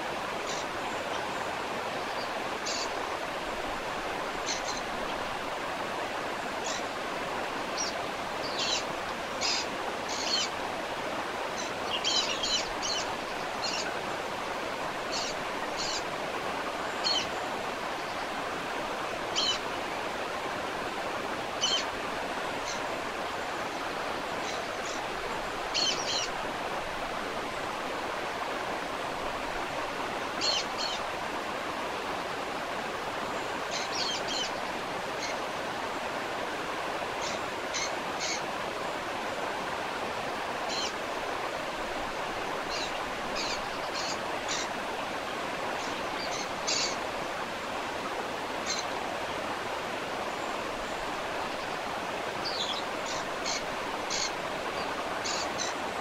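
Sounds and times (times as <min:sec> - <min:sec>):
waterfall rushing: 0:00.0 - 0:56.0
birds chirping: 0:07.8 - 0:10.6, 0:11.5 - 0:14.1, 0:15.1 - 0:16.1, 0:21.6 - 0:21.9, 0:24.4 - 0:26.4, 0:33.3 - 0:35.4, 0:37.2 - 0:38.4, 0:42.6 - 0:44.8, 0:45.8 - 0:47.0, 0:52.4 - 0:55.8.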